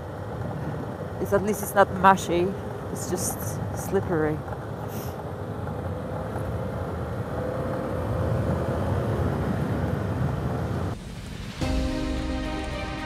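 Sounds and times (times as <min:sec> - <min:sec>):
music: 0:11.0 - 0:13.0.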